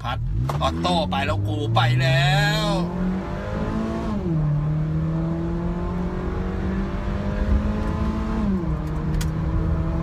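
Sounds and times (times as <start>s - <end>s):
car engine accelerating: 0.0s - 10.0s
gear shift: 7.3s - 10.0s.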